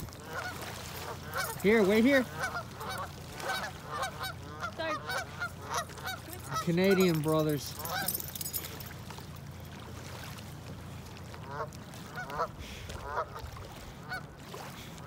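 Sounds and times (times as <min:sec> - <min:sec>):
geese honking: 0:00.2 - 0:07.2, 0:07.8 - 0:08.2, 0:11.4 - 0:13.4.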